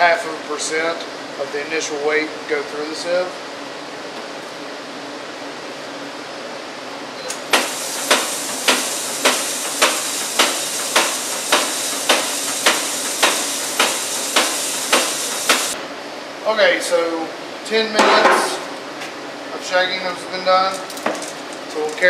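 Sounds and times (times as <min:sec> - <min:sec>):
sieve shaker running: 0:07.5 - 0:15.8.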